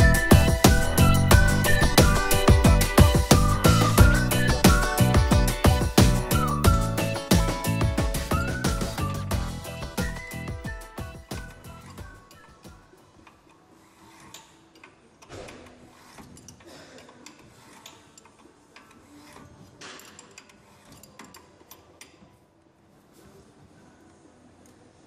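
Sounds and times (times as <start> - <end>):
metal tool scraping: 15.4 - 16.6, 18.9 - 21.5.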